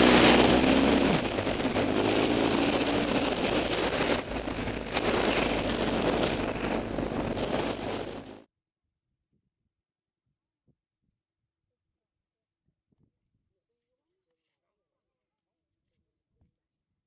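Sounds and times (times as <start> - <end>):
motorcycle engine running: 0.0 - 8.4
wind buffeting microphone: 0.0 - 8.4.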